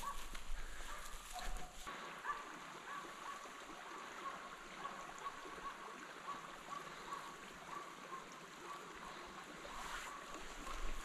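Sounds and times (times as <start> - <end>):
distant dog barking: 0.0 - 3.5, 4.2 - 9.0.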